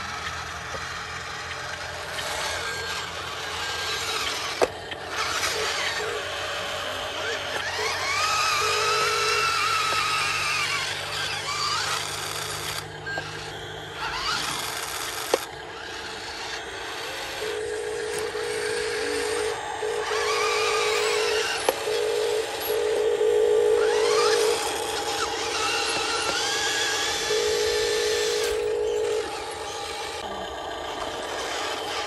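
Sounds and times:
electric motor and gearbox whining: 0.0s - 32.0s
steady buzzing tone: 1.4s - 32.0s
sharp clicks: 14.4s - 15.6s, 18.1s - 23.2s.

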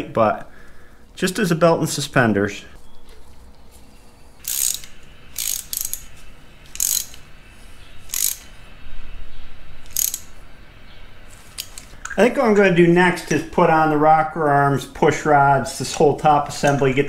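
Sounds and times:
socket ratchet clicking: 4.4s - 6.1s, 6.7s - 7.3s, 8.1s - 8.5s, 9.8s - 10.4s, 11.6s - 12.0s.

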